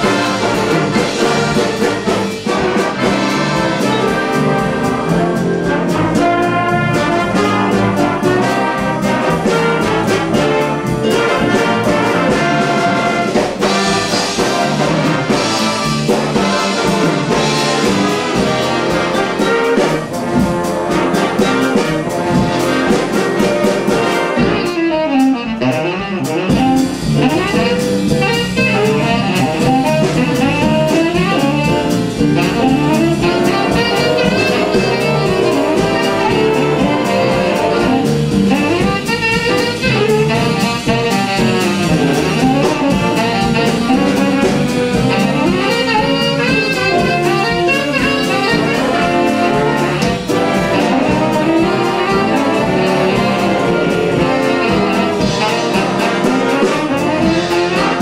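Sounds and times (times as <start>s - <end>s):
drum kit: 0.0s - 58.0s
saxophones: 0.0s - 58.0s
trombones: 0.0s - 58.0s
trumpets: 0.0s - 58.0s.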